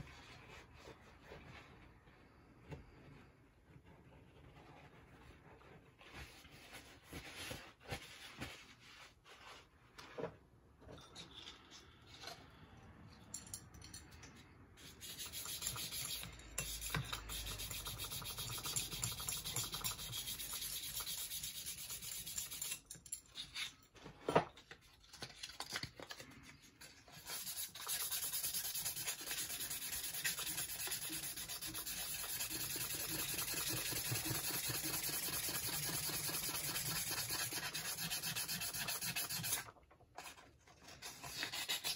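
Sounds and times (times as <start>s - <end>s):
sanding strokes on metal: 14.8s - 22.8s, 27.2s - 39.6s.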